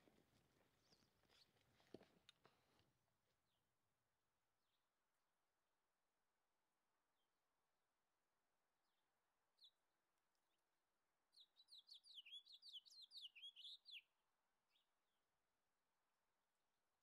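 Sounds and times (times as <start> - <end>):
songbird chirping: 0.6 - 2.4, 8.9 - 15.0.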